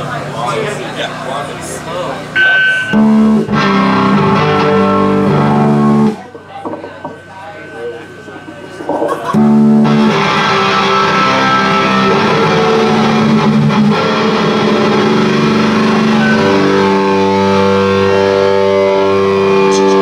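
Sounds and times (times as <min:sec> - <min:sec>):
live band playing loudly: 0:02.4 - 0:06.3, 0:07.8 - 0:20.0.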